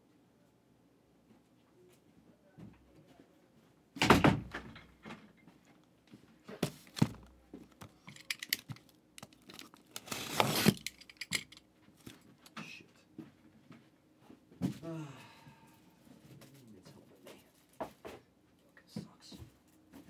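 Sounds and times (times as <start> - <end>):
cardboard rustling: 6.5 - 11.0
box thumping on table: 6.6 - 7.3.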